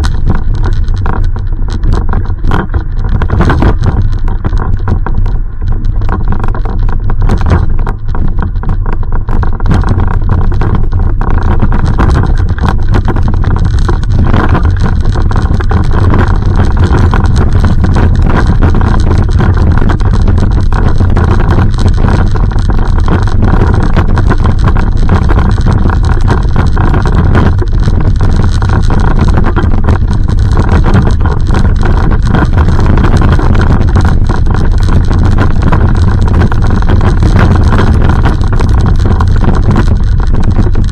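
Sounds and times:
microphone handling noise: 0:00.0 - 0:40.9
small crackles: 0:00.0 - 0:40.9
wind rumble on microphone: 0:00.0 - 0:40.9.

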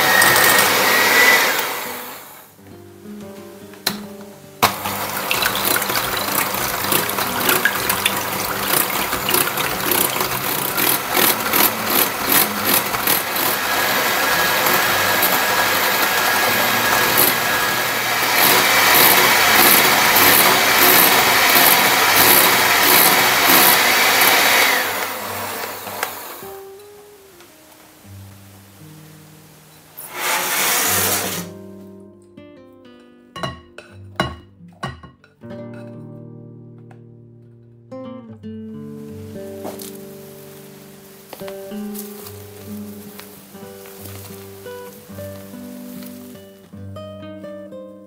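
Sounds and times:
electric hand mixer whipping: 0:00.0 - 0:02.4, 0:04.6 - 0:26.4, 0:30.1 - 0:31.5
rapid clicking of beaters: 0:04.7 - 0:24.5.

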